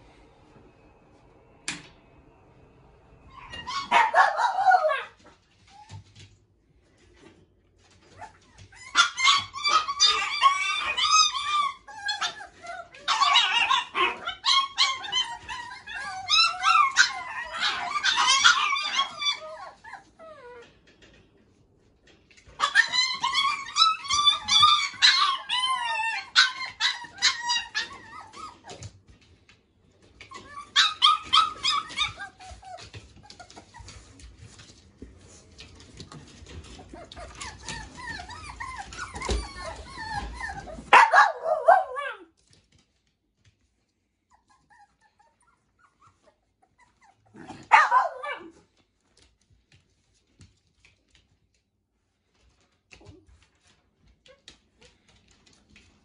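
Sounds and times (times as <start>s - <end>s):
puppies yipping and whining: 3.2s - 6.3s, 7.8s - 21.2s, 22.3s - 42.2s, 44.0s - 49.3s.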